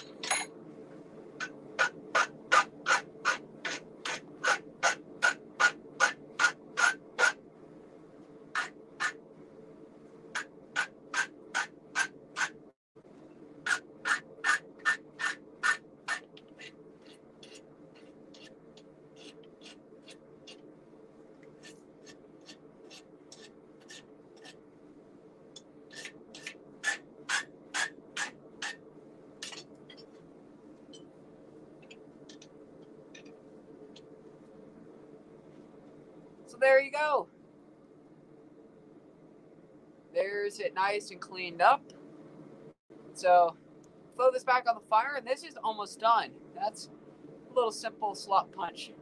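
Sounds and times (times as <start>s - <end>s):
faint low hum: 0.0s - 49.0s
rasp filing hot steel: 1.4s - 7.4s, 10.4s - 12.6s, 13.6s - 18.6s, 19.2s - 20.6s, 21.6s - 24.6s, 25.9s - 28.8s.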